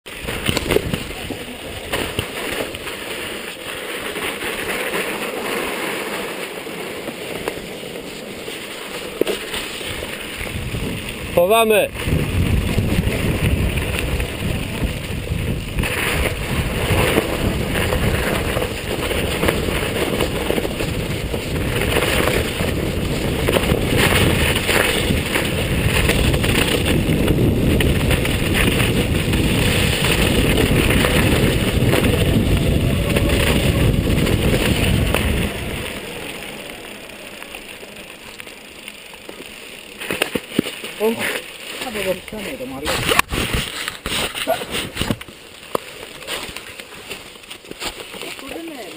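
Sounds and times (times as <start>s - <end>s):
bike tyres rumbling on gravel: 0.0s - 48.9s
wind on microphone: 9.9s - 37.8s
bike parts rattling: 12.0s - 48.7s.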